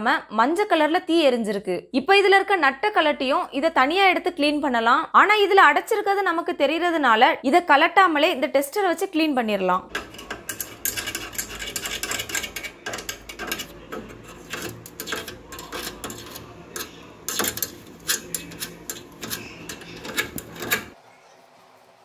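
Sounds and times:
metal tip scratching in tube: 9.9s - 21.0s.

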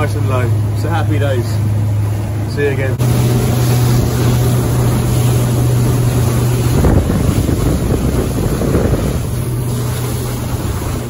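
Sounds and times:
boat engine drone: 0.0s - 11.0s
water noise: 0.0s - 11.0s
wind buffeting microphone: 3.0s - 11.0s.

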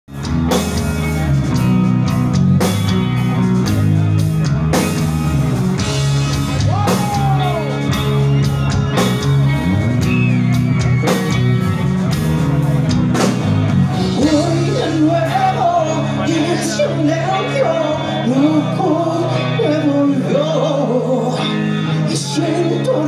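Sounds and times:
heavy metal band playing live: 0.1s - 23.0s
drum hits: 4.8s - 14.3s.

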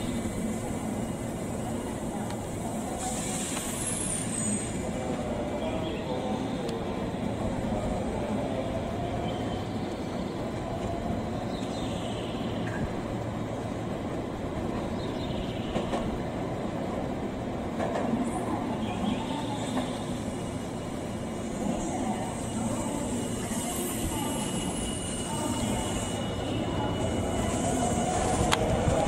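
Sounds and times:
train rumbling: 0.0s - 29.0s.

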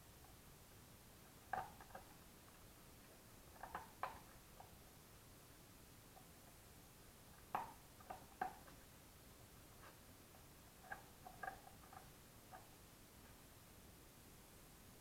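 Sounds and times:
animals tapping on tile floor: 1.5s - 2.6s, 3.5s - 4.8s, 7.4s - 8.8s, 10.8s - 12.8s.

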